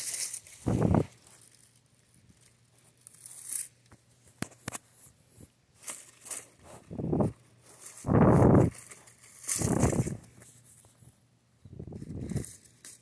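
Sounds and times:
dry leaves rustling and crackling: 0.0 - 3.7, 5.8 - 10.3
wind buffeting microphone: 0.7 - 1.1.

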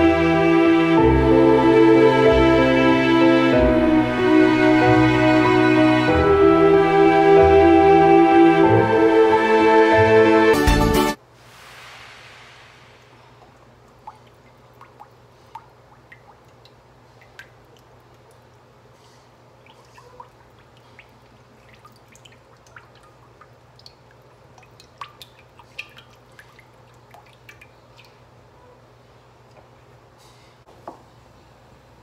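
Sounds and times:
small ticks and drips: 13.2 - 28.4.

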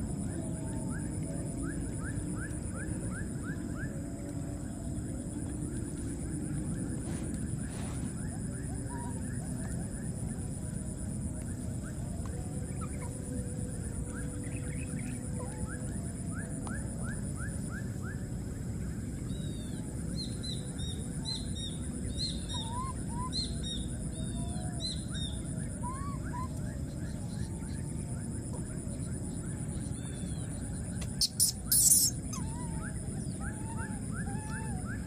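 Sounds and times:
high animal chirps: 31.2 - 32.6.

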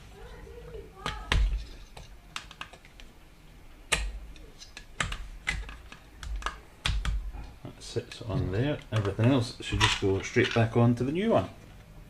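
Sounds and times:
plastic pump parts clicking: 8.1 - 10.7.

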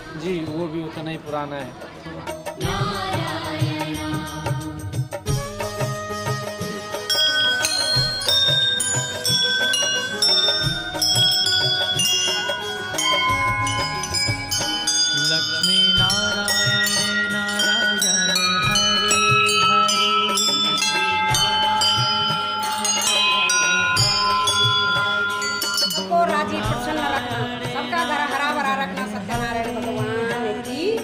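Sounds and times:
brass bells pealing: 6.0 - 28.6.

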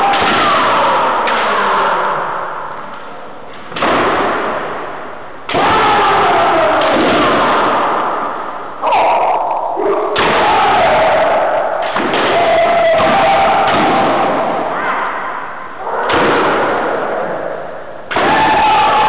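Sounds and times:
fencers shouting: 0.0 - 2.8, 5.5 - 19.0
bamboo sword strikes: 10.2 - 14.6.

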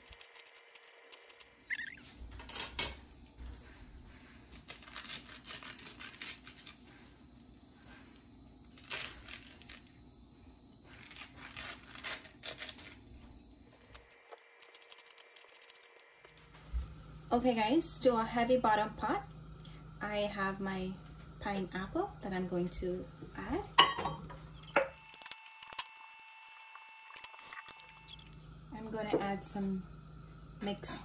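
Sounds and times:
wet scraping of pineapple flesh: 4.5 - 6.9.

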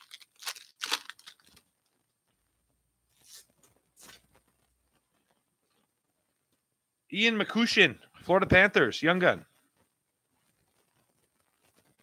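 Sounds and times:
foil wrapper crinkling and tearing: 0.0 - 2.0
soft rustles: 1.5 - 6.7, 9.4 - 12.0.

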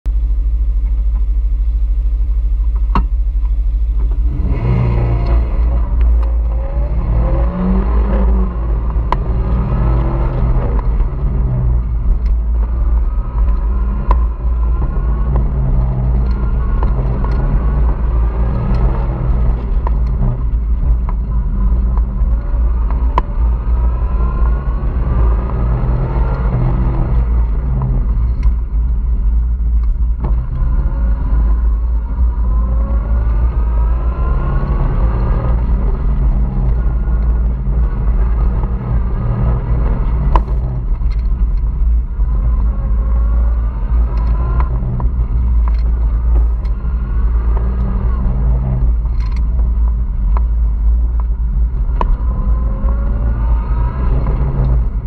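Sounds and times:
wind buffeting open cockpit: 0.1 - 55.0
car engine revving: 0.8 - 55.0.

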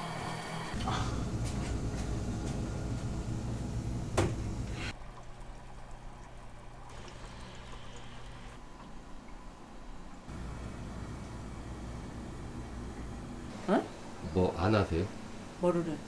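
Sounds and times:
steady low hum: 0.6 - 16.0
water sloshing and pouring: 4.9 - 10.3.

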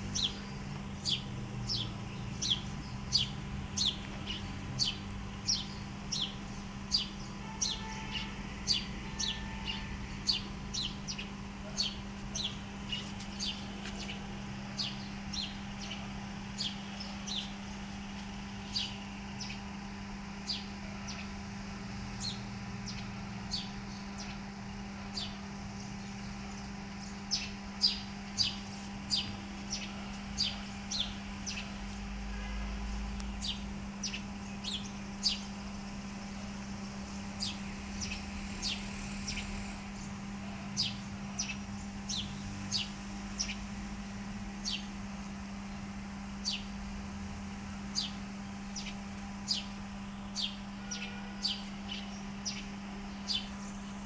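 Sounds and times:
bird chirping: 0.0 - 17.6, 33.4 - 35.5, 47.9 - 53.8
steady low hum: 0.0 - 54.0.

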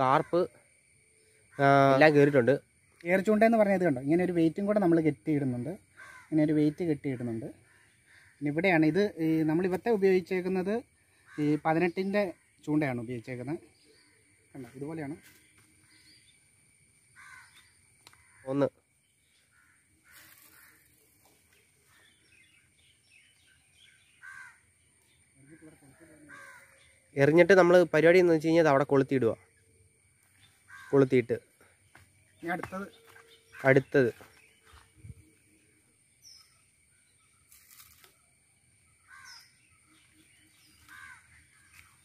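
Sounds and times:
small birds chirping: 0.0 - 42.0
crow cawing: 5.8 - 8.9, 11.0 - 12.6, 15.2 - 16.4, 17.0 - 22.6, 23.7 - 24.8, 25.4 - 27.2, 30.4 - 31.3, 39.0 - 42.0.

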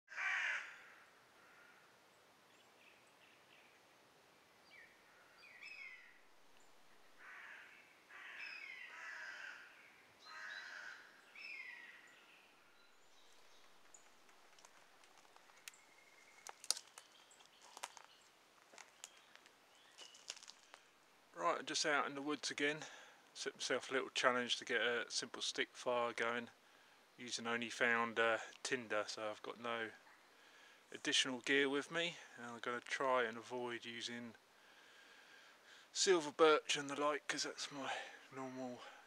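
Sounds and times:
crow cawing: 0.1 - 1.9, 7.2 - 12.0.

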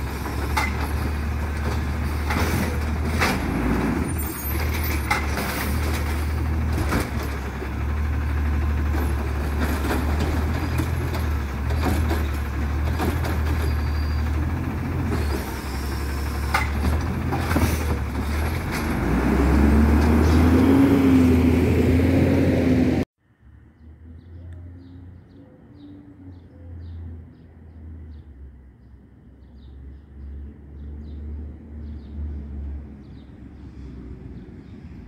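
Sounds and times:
metal clanks and knocks: 0.0 - 3.6, 4.5 - 7.7
garbage truck engine running: 0.0 - 20.8
hydraulic arm lifting cart: 15.0 - 19.1.

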